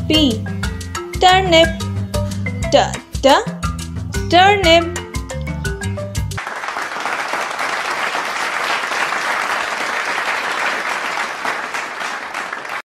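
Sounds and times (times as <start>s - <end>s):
music: 0.0s - 6.4s
crowd clapping: 6.4s - 12.9s.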